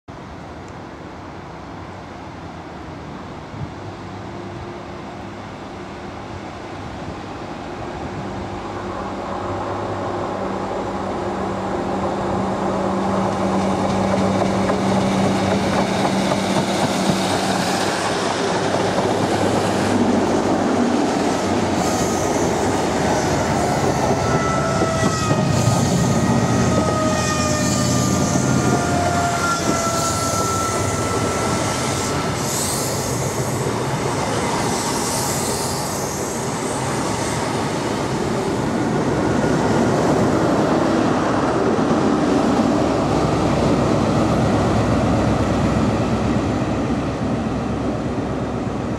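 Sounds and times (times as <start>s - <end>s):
train wheels rumbling: 8.3s - 48.9s.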